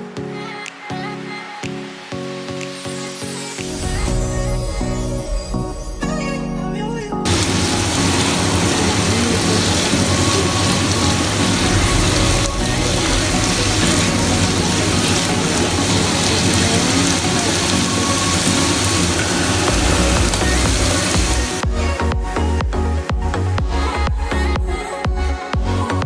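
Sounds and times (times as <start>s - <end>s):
background music with bass: 0.0s - 26.0s
vegetables sizzling in hot oil: 7.3s - 21.6s.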